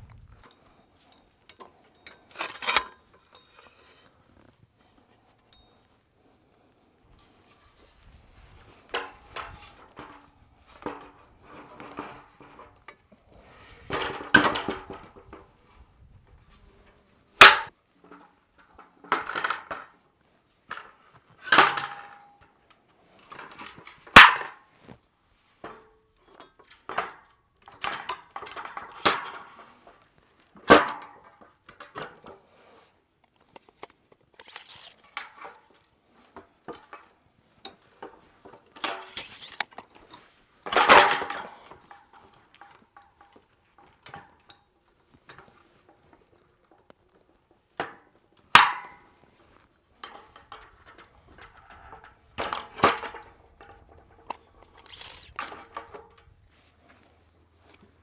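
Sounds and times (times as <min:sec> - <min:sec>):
metal parts clanking and rattling: 0:13.8 - 0:15.5, 0:38.1 - 0:44.5, 0:50.0 - 0:56.4.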